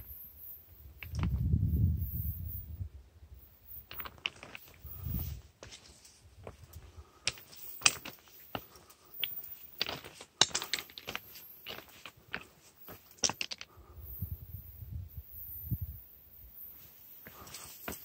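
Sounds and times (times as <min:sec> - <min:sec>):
footsteps crunching on gravel: 0:07.3 - 0:13.4, 0:17.2 - 0:18.0.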